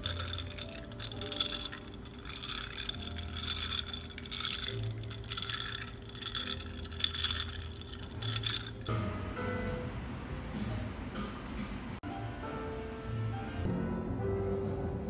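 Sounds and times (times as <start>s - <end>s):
ice cubes clinking in a glass: 0.0s - 8.9s
straw stirring ice: 0.0s - 8.9s.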